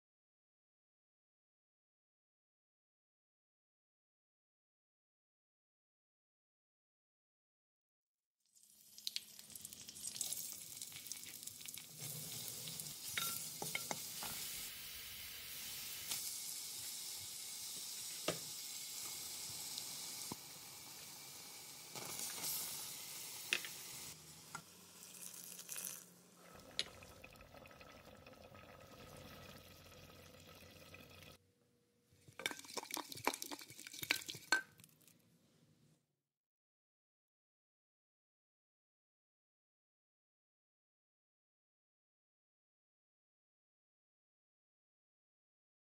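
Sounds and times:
oil sizzling in a pot: 8.4 - 31.4, 32.4 - 34.9
knocking and scraping in pot: 13.2 - 14.4.

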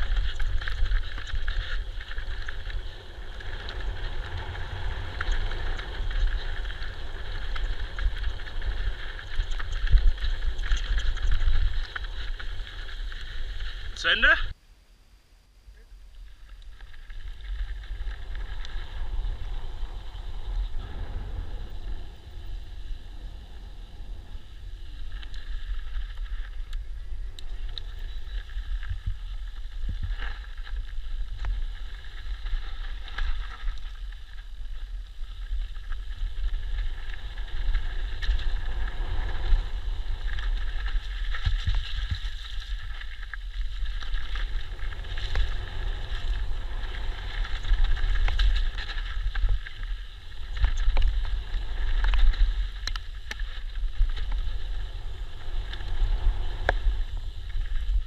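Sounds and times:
wind buffeting microphone: 0.0 - 14.0, 16.7 - 58.0
tyres rumbling on gravel: 0.0 - 14.1, 16.7 - 58.0.

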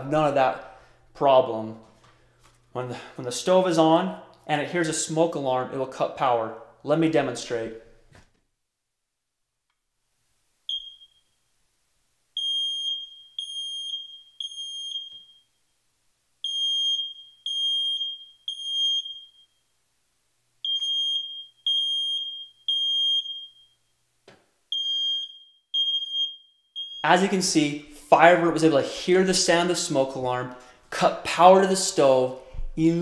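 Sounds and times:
piercing high alarm beeps: 10.7 - 11.3, 12.4 - 15.5, 16.4 - 19.5, 20.6 - 23.8, 24.7 - 27.2
smoke alarm chirp: 10.7 - 11.4, 12.4 - 15.6, 16.4 - 19.6, 20.6 - 23.9, 24.7 - 27.2.

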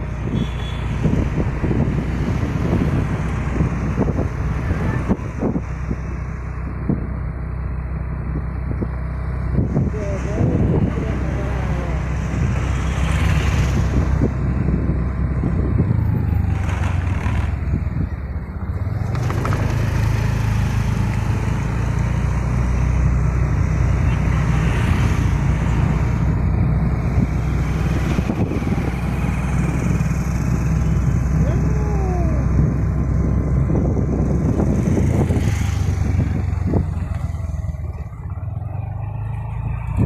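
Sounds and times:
road and wind noise: 0.0 - 40.0
traffic passing close by: 0.0 - 40.0
vehicle engine drone: 0.0 - 40.0.

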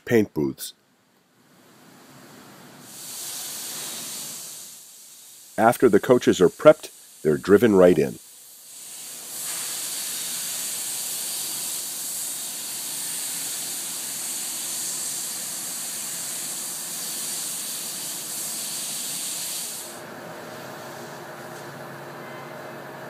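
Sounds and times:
loud hiss of rushing air: 2.0 - 5.7, 6.4 - 21.2
low machine hum with tones: 19.9 - 23.0.

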